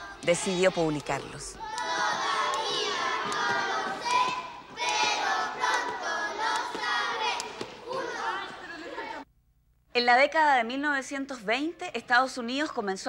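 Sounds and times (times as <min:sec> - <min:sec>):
children singing: 0:01.6 - 0:09.2.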